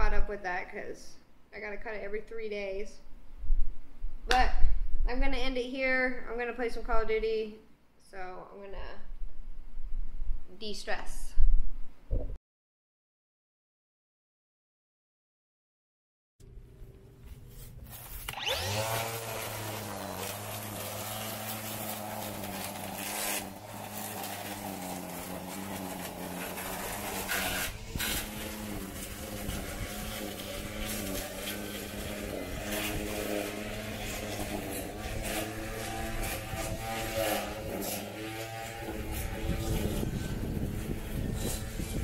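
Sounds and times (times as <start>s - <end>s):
string trimmer cutting grass: 17.9s - 42.0s.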